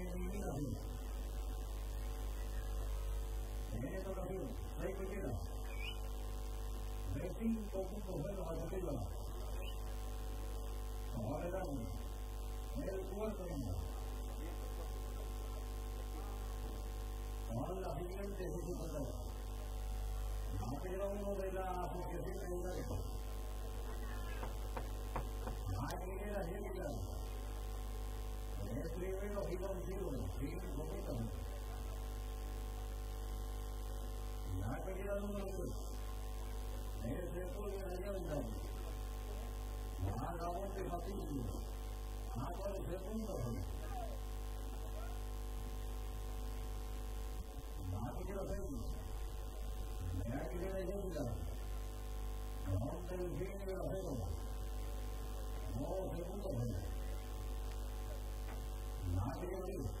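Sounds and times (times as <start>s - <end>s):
electrical mains hum: 0.0s - 60.0s
person speaking: 23.7s - 27.3s.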